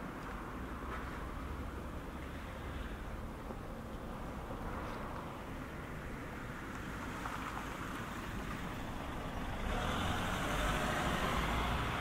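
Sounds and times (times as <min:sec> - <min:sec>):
motor vehicle passing: 0:06.9 - 0:12.0.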